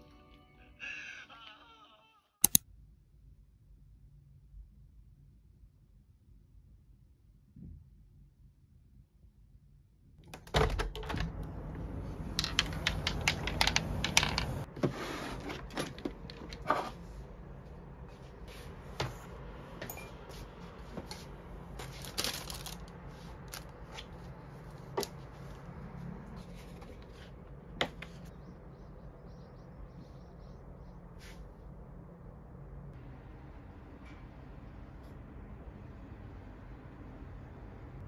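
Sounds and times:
paper rustling: 21.1s - 25.6s.

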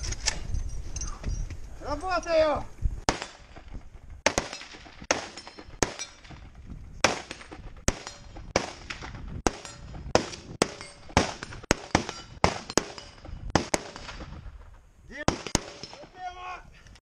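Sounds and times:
rifle shots: 3.0s - 16.0s.

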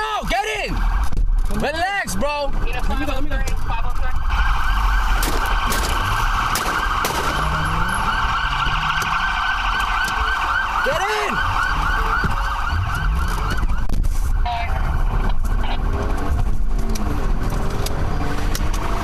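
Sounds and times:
police siren yelping: 0.0s - 19.0s
low swooping siren tone: 2.4s - 19.0s
engine revving: 4.3s - 9.9s, 14.8s - 19.0s.

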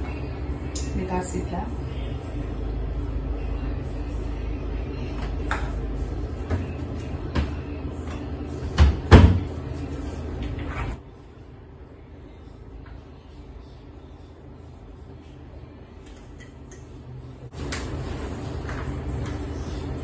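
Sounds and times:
steady low hum: 0.0s - 20.0s
cabinet door opening and shutting: 8.7s - 9.5s.

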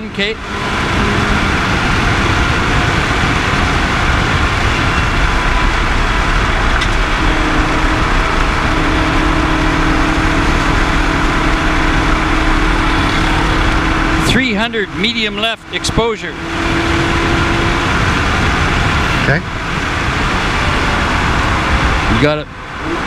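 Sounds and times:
car engine running: 0.0s - 23.0s
tyre and road noise: 0.0s - 23.0s.

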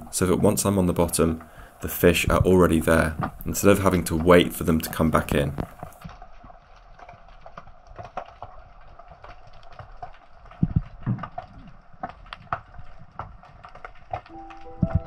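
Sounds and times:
underwater clicks and knocks: 9.2s - 15.0s.

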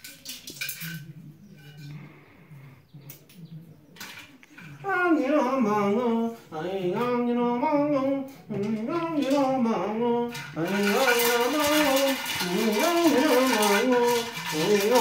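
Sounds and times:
shaken rattle: 0.0s - 1.1s, 8.6s - 15.0s
person chanting: 4.8s - 15.0s.

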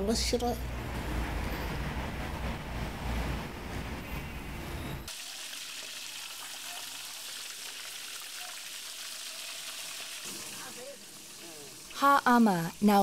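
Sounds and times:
food sizzling in hot oil: 5.1s - 13.0s.

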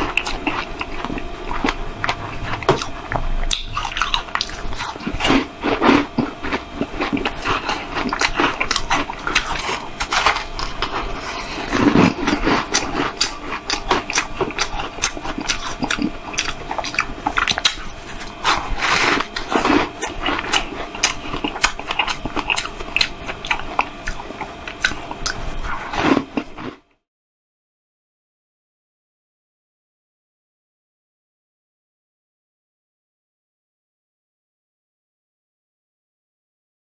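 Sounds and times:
chewing crushed ice: 0.0s - 26.8s.

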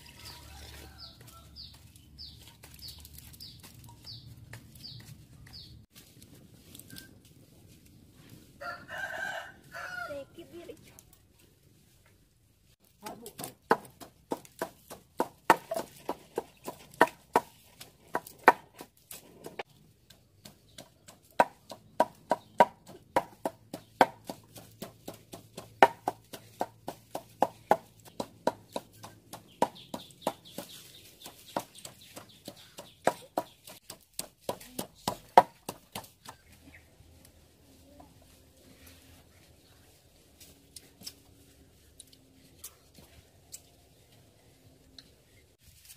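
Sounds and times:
wooden pestle pounding in mortar: 13.0s - 18.9s, 20.4s - 30.7s, 31.3s - 36.4s.

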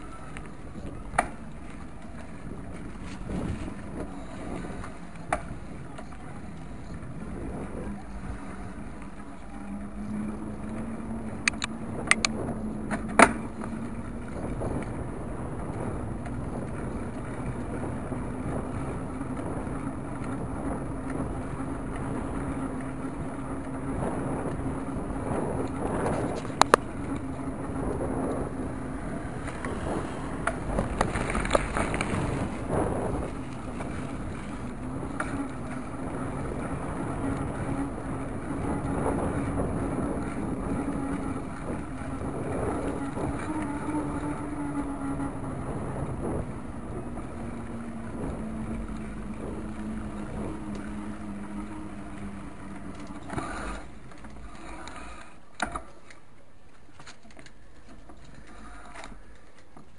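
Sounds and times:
wind on microphone: 0.0s - 55.8s
bicycle rolling on asphalt: 0.0s - 59.9s
bicycle clicks and knocks: 11.4s - 13.5s.

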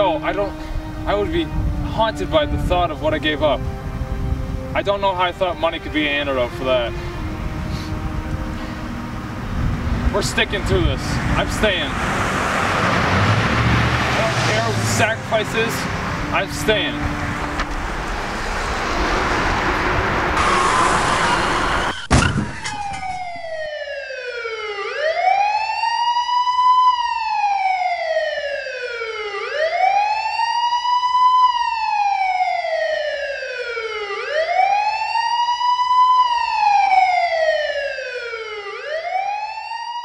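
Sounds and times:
emergency siren wailing: 0.0s - 40.0s
car noise rushing: 0.1s - 23.7s
sharp bang: 20.4s - 23.7s.

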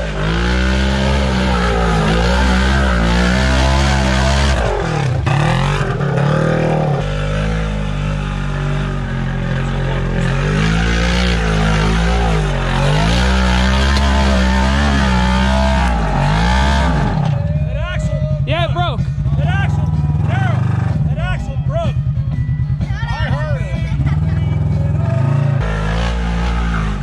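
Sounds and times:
engine revving under load: 0.0s - 17.6s, 24.0s - 27.0s.

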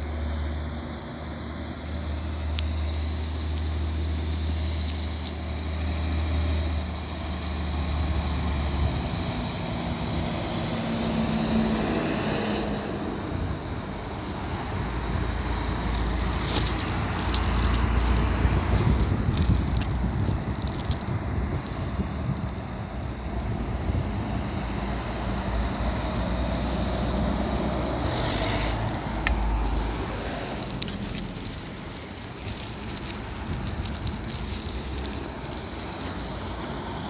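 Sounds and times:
truck engine drone: 0.0s - 37.0s
wind buffeting microphone: 14.4s - 25.6s, 27.0s - 37.0s.

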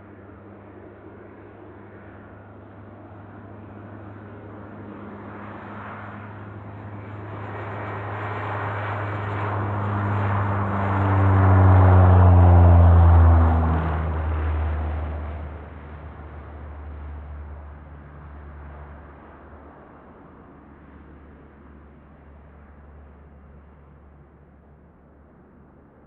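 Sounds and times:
turboprop airliner taking off: 0.0s - 26.0s.

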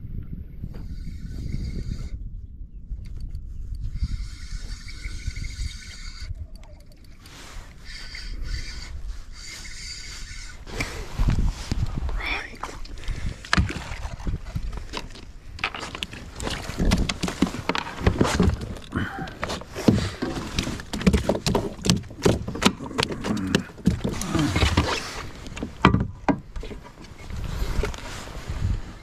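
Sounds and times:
knocks clicks and rattles: 14.9s - 26.8s.

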